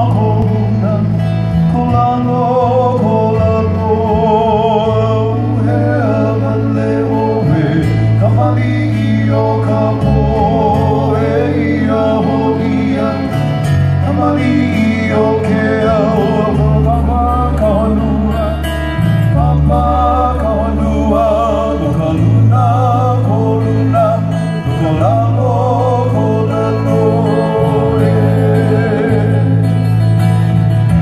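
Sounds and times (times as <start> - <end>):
person singing: 0.0 - 30.1
low bass notes: 0.0 - 31.0
strummed ukulele and guitar: 0.0 - 31.0.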